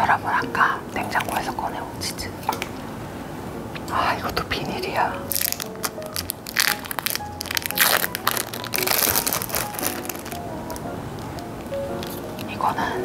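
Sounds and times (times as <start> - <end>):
light background music: 0.0 - 13.0
plastic film crinkling: 5.2 - 12.6.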